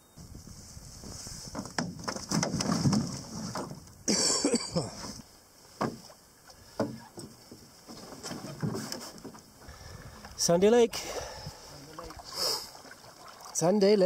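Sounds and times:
paddle strokes in water: 0.5s - 4.0s, 4.9s - 10.4s, 11.0s - 14.0s
pack thumping into canoe: 1.3s - 5.2s.

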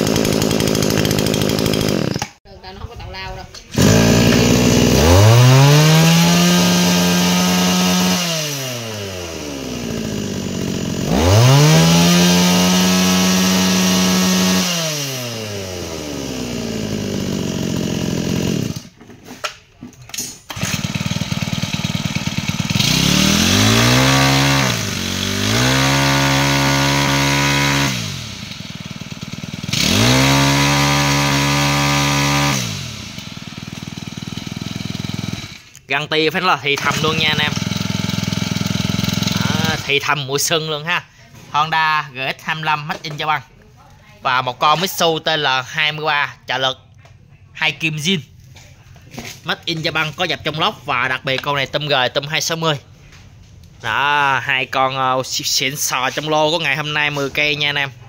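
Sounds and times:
brush-cutter engine revving: 0.0s - 2.4s, 3.7s - 19.0s, 20.5s - 35.8s, 36.7s - 40.1s.

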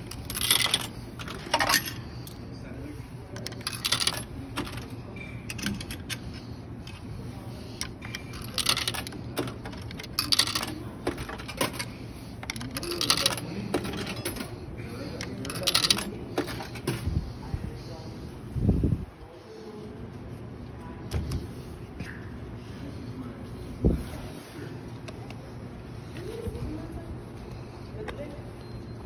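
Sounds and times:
coins clinking through vending machine: 0.0s - 2.4s, 3.3s - 7.0s, 7.8s - 17.0s
steady low hum: 0.0s - 29.0s.

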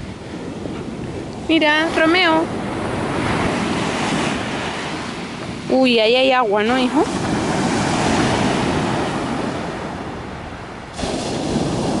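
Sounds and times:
waves breaking on shore: 0.0s - 12.0s.

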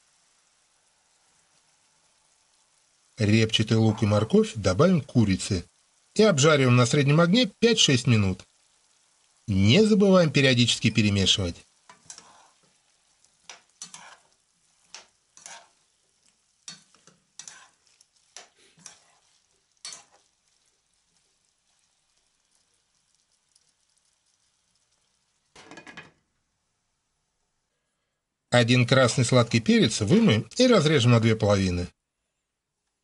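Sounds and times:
food frying: 0.0s - 27.4s, 28.6s - 31.9s
spoon scraping frying pan: 11.7s - 22.1s.

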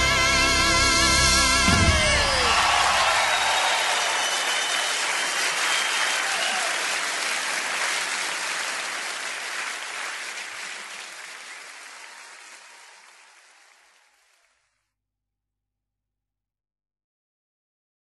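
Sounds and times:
audience applauding: 1.7s - 14.6s.

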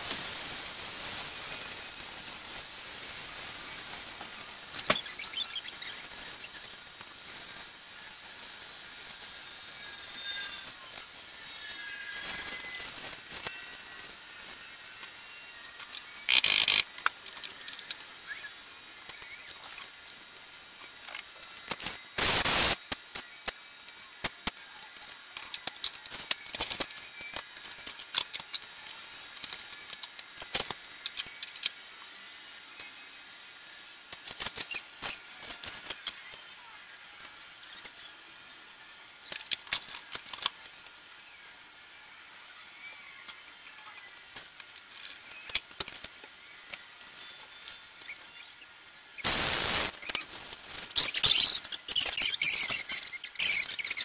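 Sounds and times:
aerosol spray can hissing: 21.8s - 23.0s, 49.2s - 54.0s.

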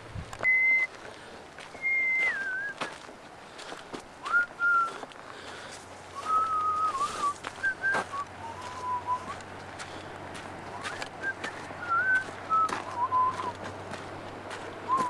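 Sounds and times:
person whistling a slow tune: 0.4s - 0.9s, 1.7s - 3.0s, 4.2s - 5.0s, 6.2s - 9.4s, 10.7s - 13.6s.

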